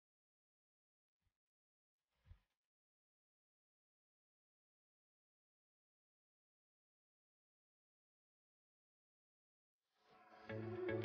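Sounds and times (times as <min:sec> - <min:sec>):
background music with plucked notes: 0:10.5 - 0:11.0.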